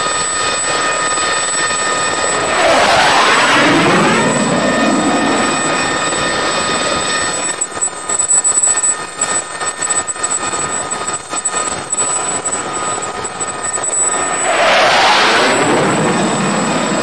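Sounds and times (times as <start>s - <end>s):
low-flying jet passing: 1.9s - 7.5s, 13.8s - 17.0s.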